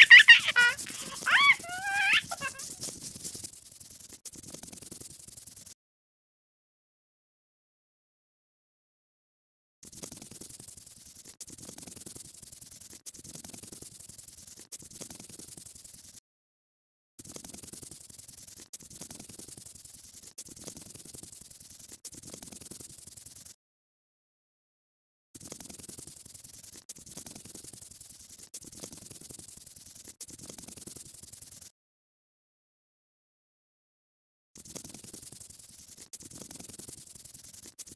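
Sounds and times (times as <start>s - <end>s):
scratchy rubbing of colouring in: 0.0s - 5.8s, 9.8s - 16.2s, 17.2s - 23.6s, 25.4s - 31.7s, 34.6s - 37.9s.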